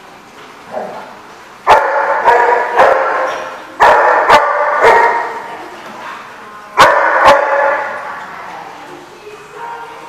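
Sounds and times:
dog barking: 0:01.7 - 0:05.4, 0:06.8 - 0:08.0.

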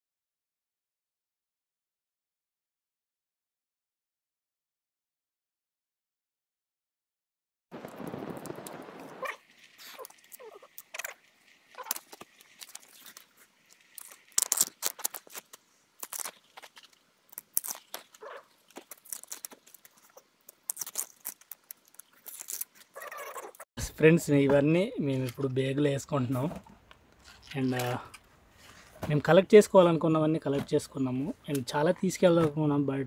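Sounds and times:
husks tearing off bamboo shoots: 0:09.2 - 0:23.6, 0:26.4 - 0:29.1
rustling noise: 0:26.2 - 0:29.4.

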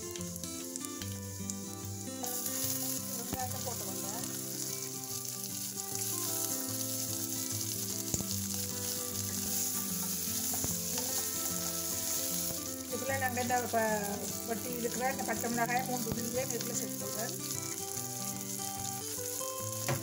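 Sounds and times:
spices frying in hot oil: 0:00.0 - 0:20.0
spoon stirring: 0:04.3 - 0:18.8.

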